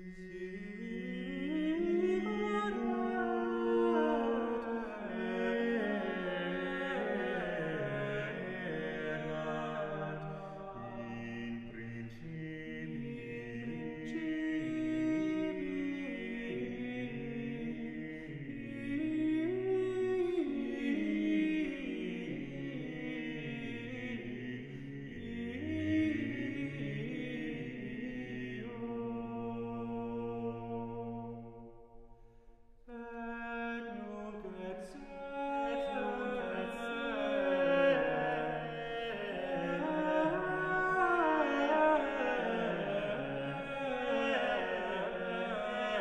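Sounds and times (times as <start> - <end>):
chant-like vocal music: 0.0 - 46.0.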